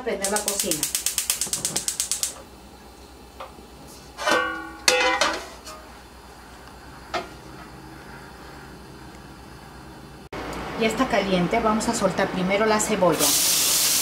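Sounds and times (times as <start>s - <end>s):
gas igniter clicking: 0.2s - 2.4s
metal wok knocking on grate: 4.2s - 5.4s.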